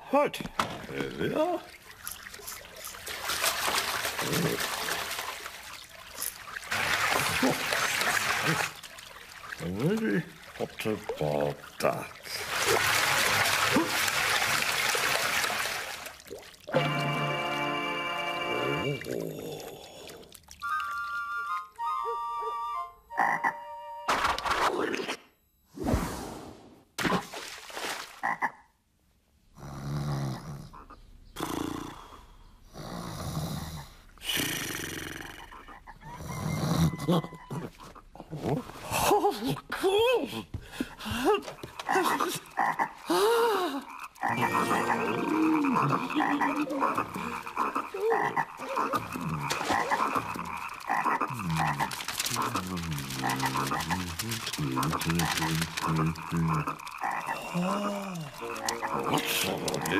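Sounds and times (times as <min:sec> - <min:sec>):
low rasping croak: 0:23.2 - 0:23.7, 0:28.2 - 0:28.7, 0:43.8 - 0:59.9.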